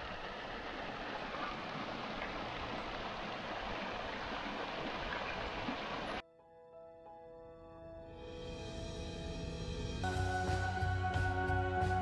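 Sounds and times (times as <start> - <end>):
water rushing over rocks: 0.0 - 6.2.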